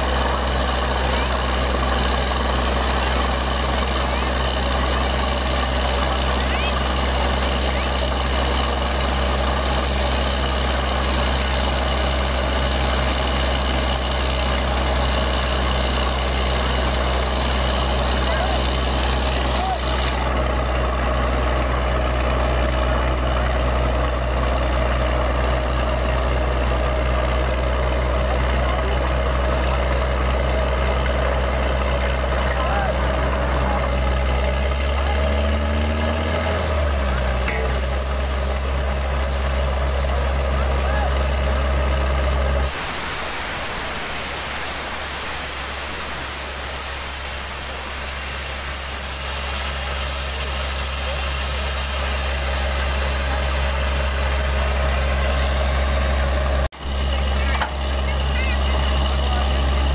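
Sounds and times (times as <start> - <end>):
drilling rig engine droning: 0.0 - 59.9
water and slurry gushing: 29.3 - 56.7
compressed air rushing hiss: 36.6 - 41.6, 42.6 - 56.7.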